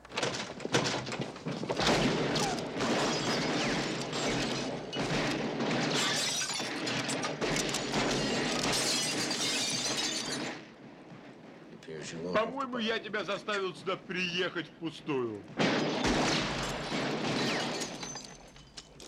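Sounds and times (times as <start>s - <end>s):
things crashing and breaking: 0.0s - 11.4s, 15.4s - 19.0s
glass shattering: 1.8s - 10.7s, 15.6s - 19.0s.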